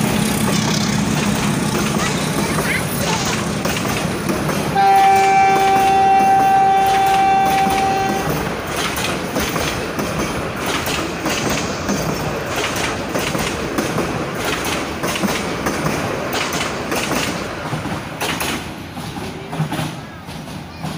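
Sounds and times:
train wheels clattering over rail joints: 0.0 - 20.9
train horn long note: 4.8 - 8.4.

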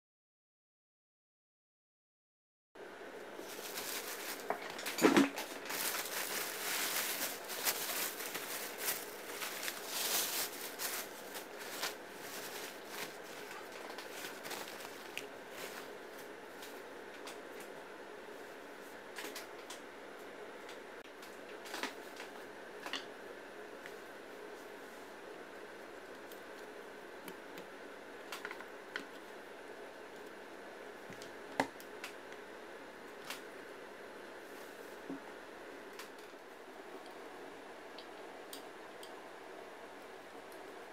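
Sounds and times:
steady background hiss: 2.8 - 40.9
plastic bag crinkling: 3.4 - 16.0.

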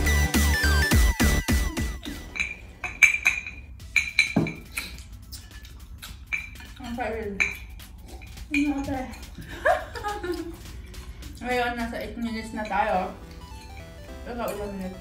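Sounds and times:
chopsticks clinking on bowls: 2.1 - 9.5, 12.0 - 14.9.

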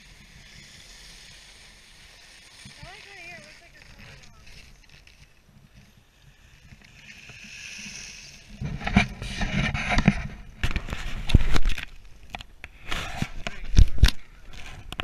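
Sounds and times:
skis scraping on snow: 0.0 - 5.3.

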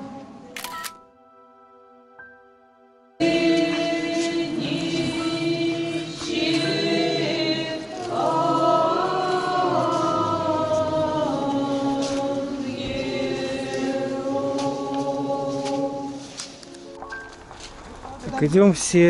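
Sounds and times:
choir chanting: 3.2 - 16.6.

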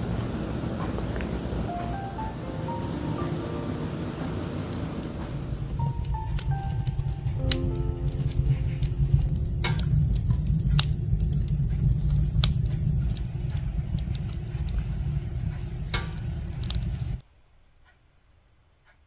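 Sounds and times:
low rush of flame: 2.8 - 17.2
wood fire crackling and popping: 4.2 - 17.2.

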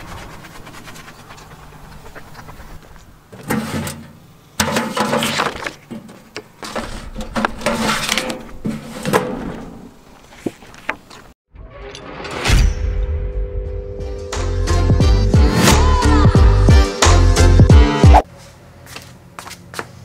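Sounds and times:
paper rustling: 0.0 - 3.7, 5.0 - 9.1, 10.1 - 11.4.

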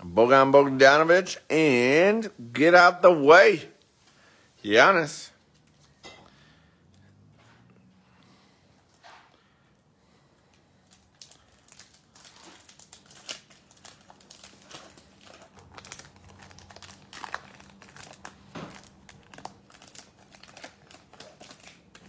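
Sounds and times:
foil wrapper crinkling: 10.8 - 22.0.

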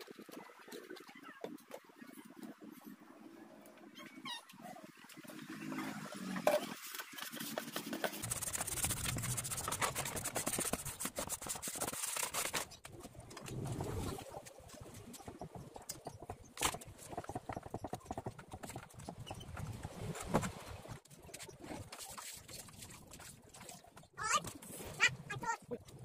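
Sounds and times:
hand rubbing inside plastic basin: 7.2 - 12.6.

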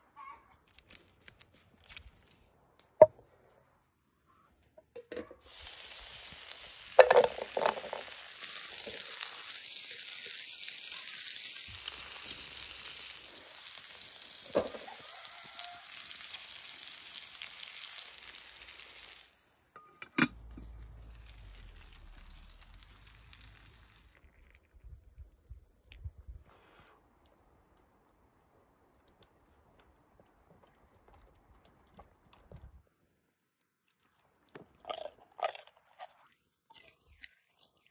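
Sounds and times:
food sizzling in frying pan: 5.4 - 19.7, 20.4 - 24.2
food knocking into pan: 7.0 - 8.1
low rumble: 20.4 - 24.0.

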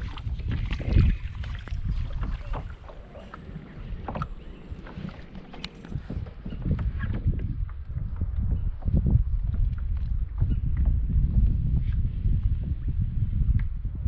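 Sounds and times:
paddle splashing in water: 0.0 - 8.2
wind rumble on microphone: 0.0 - 14.0.

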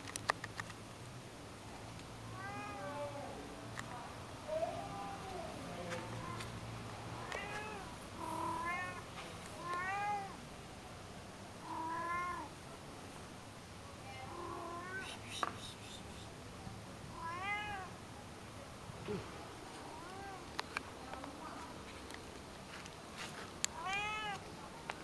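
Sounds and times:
cat meowing: 2.3 - 3.3, 7.2 - 9.0, 9.6 - 10.4, 11.6 - 12.5, 14.1 - 15.2, 17.1 - 17.9, 23.8 - 24.4.

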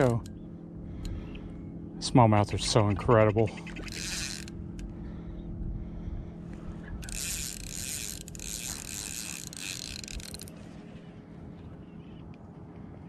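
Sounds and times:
low hum: 0.0 - 13.0
fishing reel drag buzzing: 3.6 - 5.3, 6.5 - 11.0.

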